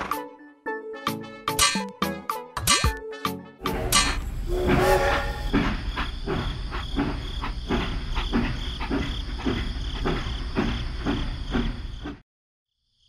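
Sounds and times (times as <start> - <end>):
regular clacking beat: 1.5 - 4.4.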